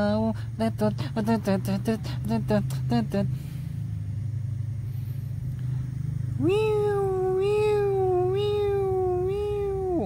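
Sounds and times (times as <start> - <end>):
steady low hum: 0.0 - 10.0
long high vocal call: 6.3 - 10.0.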